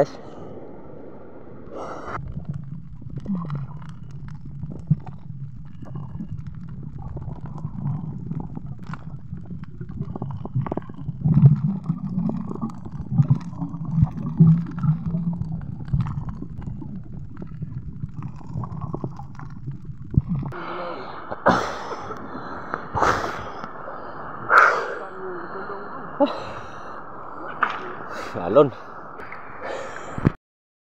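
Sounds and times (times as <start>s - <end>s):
muffled underwater rumble: 0.0s - 30.4s
water splashing: 1.6s - 30.2s
underwater clicks and knocks: 2.2s - 20.6s.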